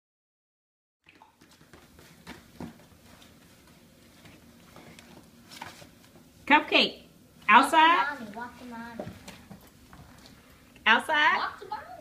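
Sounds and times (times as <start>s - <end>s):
soft rustling: 1.4s - 6.3s.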